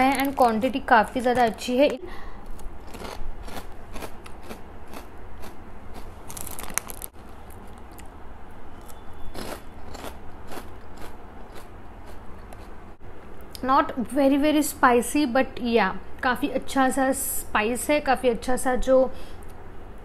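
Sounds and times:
chips crunching as chewed: 2.4s - 8.2s, 8.8s - 12.7s.

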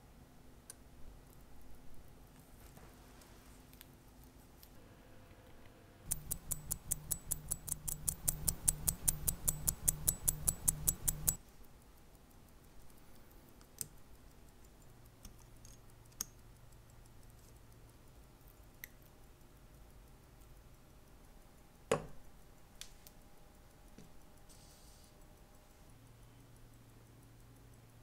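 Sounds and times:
faint small clicks: 0.6s - 28.0s
watch ticking: 6.1s - 28.0s.

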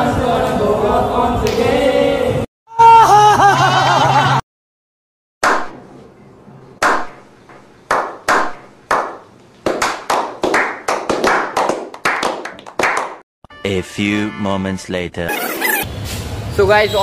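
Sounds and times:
group slow clapping: 7.9s - 13.2s.

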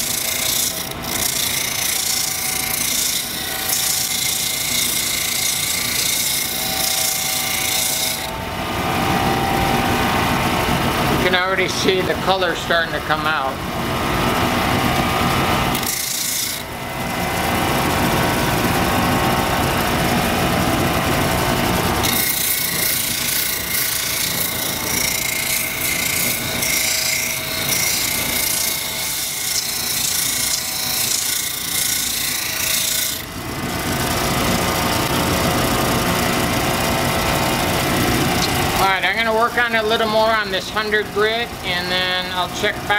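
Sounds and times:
stone grinding on wheel: 0.0s - 8.3s, 15.7s - 16.7s, 22.0s - 33.2s
motor running: 13.6s - 39.1s.

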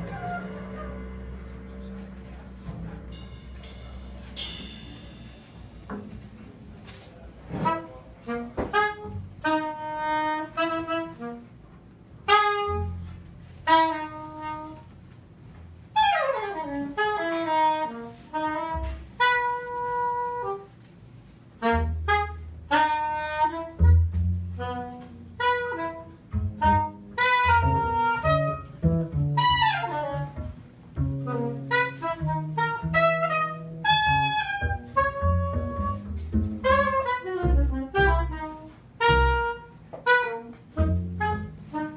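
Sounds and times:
saxophone phrases: 0.0s - 5.5s, 7.5s - 11.6s, 12.2s - 15.0s, 16.0s - 20.8s, 21.6s - 30.6s, 31.2s - 41.9s
double bass notes: 0.0s - 41.9s
drum and cymbal hits: 2.6s - 6.4s.

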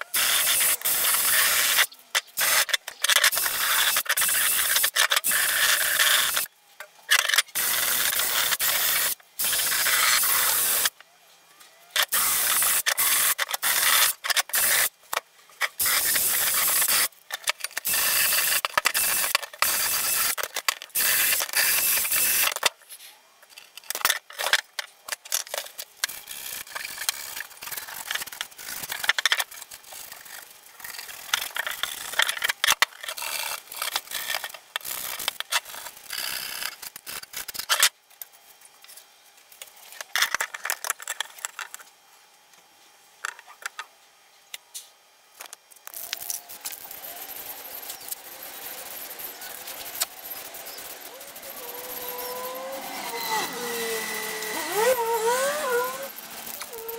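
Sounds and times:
drill with wire brush scrubbing metal: 0.0s - 6.5s, 7.5s - 10.9s, 12.0s - 14.9s, 15.7s - 22.6s, 46.0s - 56.9s.

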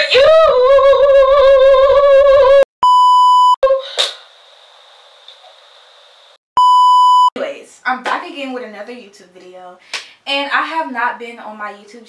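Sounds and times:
test tone beep: 2.8s - 3.6s, 6.6s - 7.4s
faint steady hiss: 4.0s - 6.4s.

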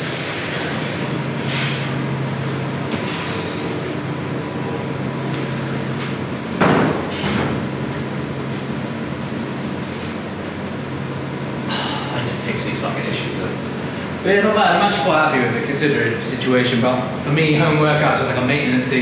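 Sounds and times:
low mechanical hum of machinery: 0.0s - 19.0s
loud knock: 6.6s - 7.6s.

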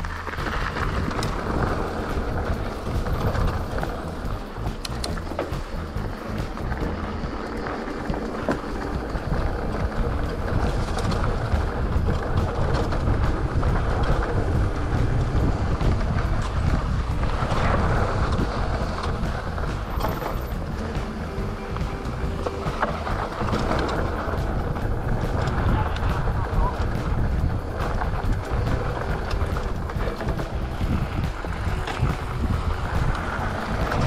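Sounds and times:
bike clicks and rattles: 0.0s - 34.0s
low rumble: 0.0s - 34.0s
wind buffeting microphone: 0.0s - 34.0s.

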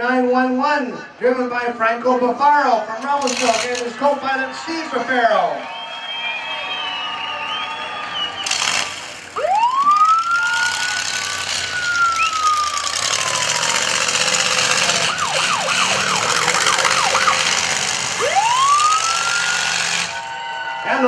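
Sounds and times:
steady background noise: 0.0s - 21.0s
siren wailing and yelping: 9.4s - 20.8s.

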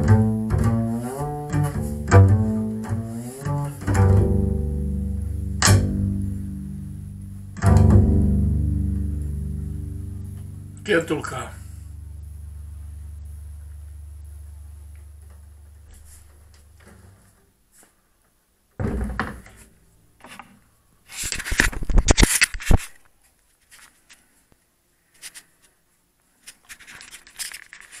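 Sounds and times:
low double bass note: 0.0s - 16.8s
rubbing against microphone: 15.8s - 17.9s, 21.1s - 23.0s
clicks and rustles: 21.1s - 24.3s, 25.1s - 28.0s.

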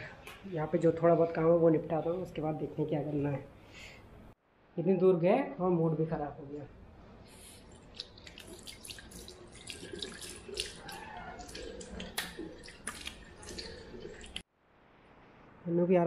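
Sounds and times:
water splashing on face: 7.6s - 14.4s
tap water running into basin: 7.7s - 14.4s.

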